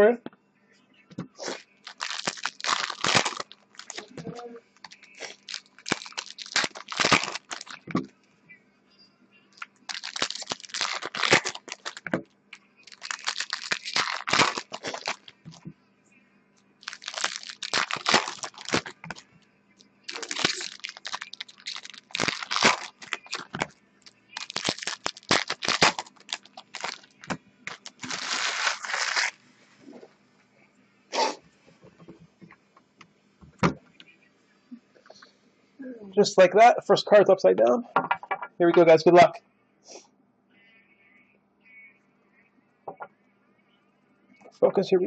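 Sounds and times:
card packaging tearing and crinkling: 1.4 - 4.1, 4.8 - 7.9, 9.6 - 12.2, 12.8 - 15.6, 16.8 - 19.2, 20.1 - 23.8, 24.4 - 29.4.

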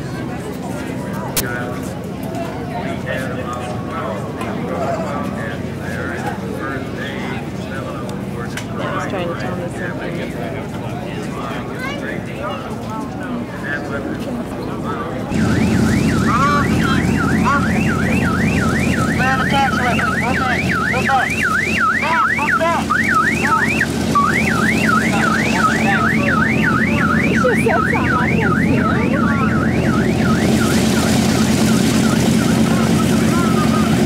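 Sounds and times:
low engine drone: 15.2 - 34.0
electronic alarm wailing: 15.3 - 34.0.

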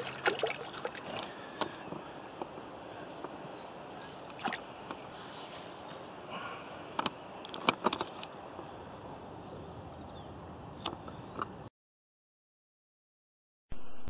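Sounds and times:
steady background hiss: 0.1 - 11.4
clicks and knocks of fishing tackle: 6.9 - 8.3.

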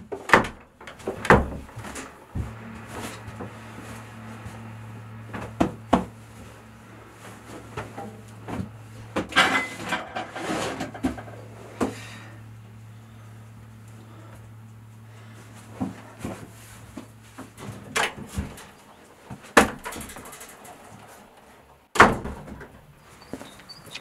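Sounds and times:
knocks and rustles: 0.0 - 12.0, 15.4 - 23.6
steady low hum: 0.0 - 23.9
wooden door shutting: 22.0 - 22.8.

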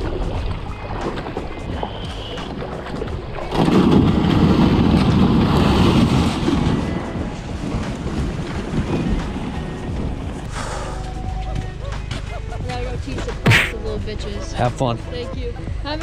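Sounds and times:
kayak hull grinding on stones: 0.0 - 10.5.

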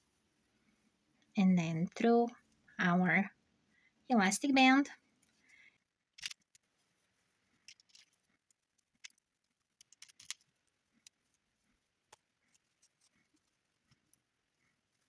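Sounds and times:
crochet hook and beads clicking: 7.7 - 11.3.

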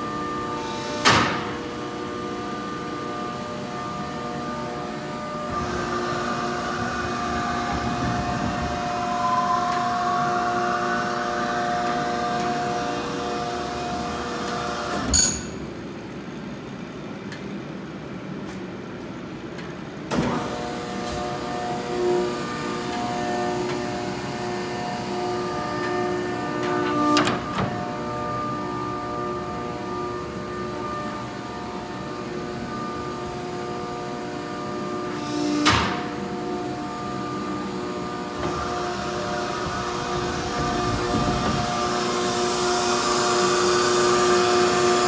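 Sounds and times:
machine hum: 0.0 - 18.3, 19.2 - 45.0
metallic clank with ringing: 15.1 - 15.8.

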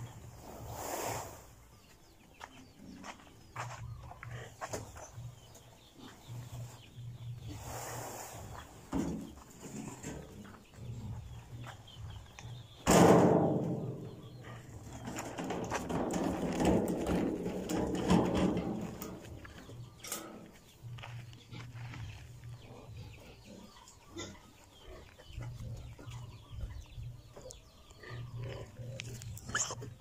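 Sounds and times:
cart rattling over dirt: 12.5 - 22.8
metal cart knocking: 12.8 - 20.4.

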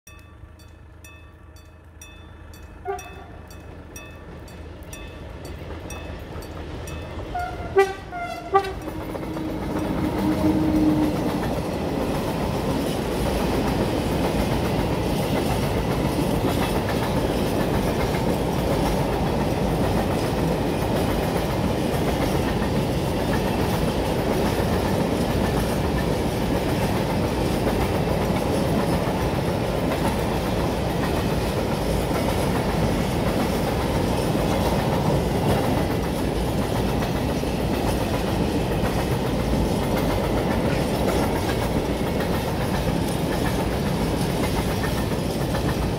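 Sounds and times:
locomotive hum: 0.1 - 45.9
train wheels rumbling on rail: 0.1 - 45.9
train horn blasts: 2.8 - 3.5, 7.3 - 11.5.

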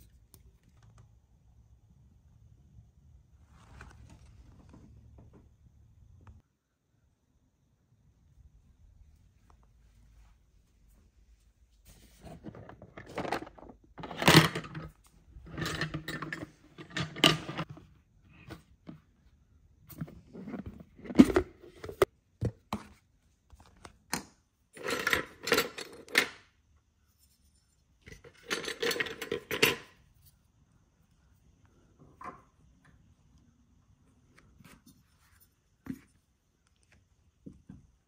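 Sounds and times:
plastic parts clattering: 12.2 - 17.8, 24.8 - 26.5, 28.1 - 30.0.

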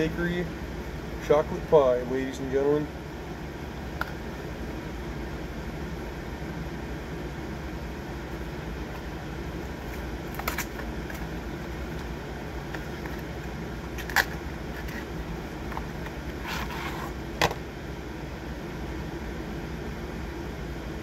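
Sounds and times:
steady low hum: 0.0 - 21.0
cardboard packaging crackling: 9.6 - 12.1.

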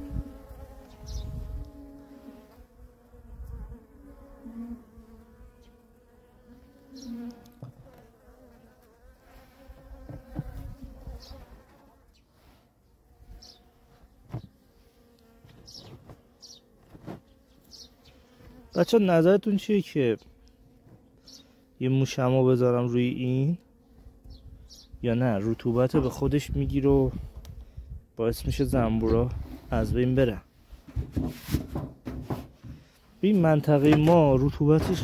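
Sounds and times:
bees buzzing: 0.0 - 27.9
knocks on wooden hive: 10.0 - 10.6, 30.9 - 32.8, 33.8 - 35.0.

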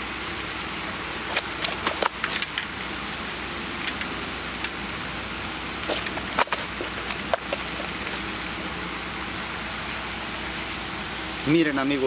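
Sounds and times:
sharp clicks and rustles: 1.2 - 2.8, 5.8 - 8.3.

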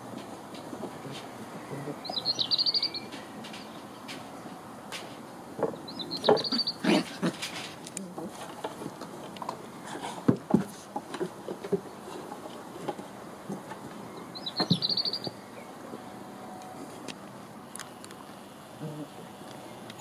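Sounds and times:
puppies scuffling and playing: 0.0 - 2.2, 2.8 - 16.1
high chirping: 2.0 - 3.1, 5.8 - 6.8, 14.2 - 15.7.

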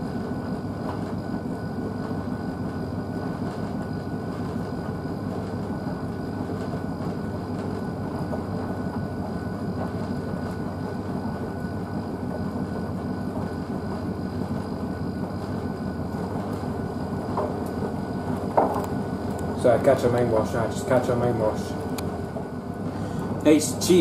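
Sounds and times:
washing machine drum churning: 0.0 - 24.0.

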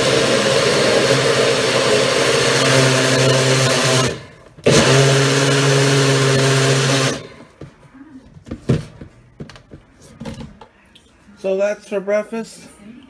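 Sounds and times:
blender motor running: 0.0 - 7.4.

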